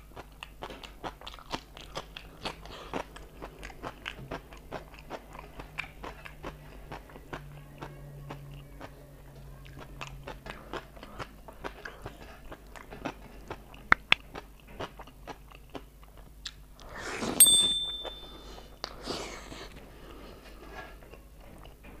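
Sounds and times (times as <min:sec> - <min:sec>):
wet chewing and lip smacks: 0:00.0 - 0:09.0, 0:09.6 - 0:16.9
brief ringing tone: 0:17.4 - 0:18.5.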